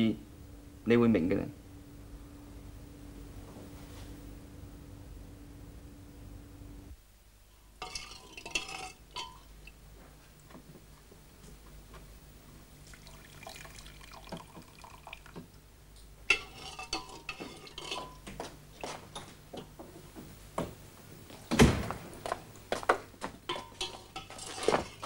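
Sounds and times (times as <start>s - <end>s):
dishes and pot clinking: 7.8s - 9.5s, 16.3s - 19.8s, 23.5s - 25.0s
soup being poured: 12.8s - 15.5s.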